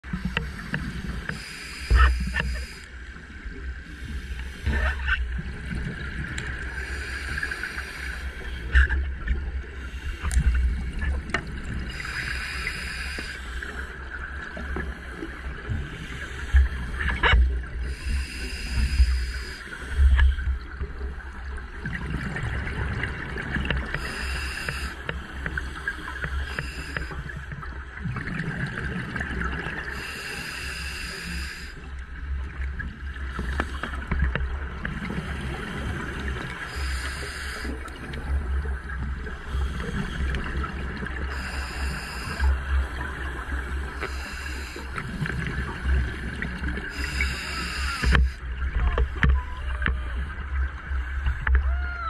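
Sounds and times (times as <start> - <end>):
hissing regulator inhalations: 0.1 - 2.9, 6.7 - 8.6, 11.9 - 14.0, 17.8 - 20.4, 23.9 - 27.2, 29.9 - 31.8, 35.7 - 38.0, 41.2 - 42.7, 43.9 - 45.2, 46.9 - 48.4.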